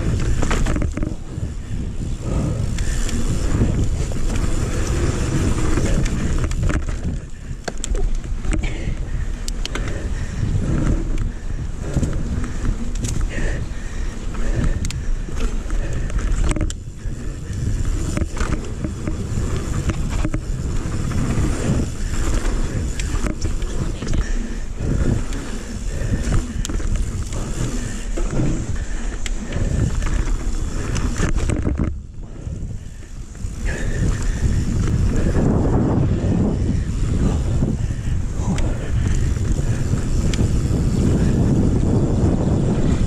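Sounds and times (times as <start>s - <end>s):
bike knocking and rattling: 0.0s - 43.0s
tyres on dirt: 0.0s - 43.0s
wind buffeting microphone: 0.0s - 43.0s.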